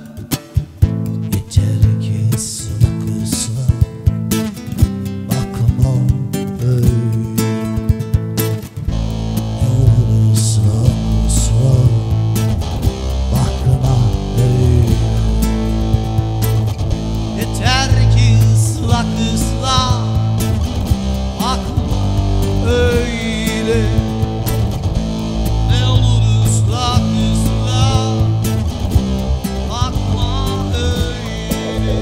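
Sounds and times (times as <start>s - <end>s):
plucked acoustic guitar: 0.0s - 32.0s
steady low bass: 8.8s - 32.0s.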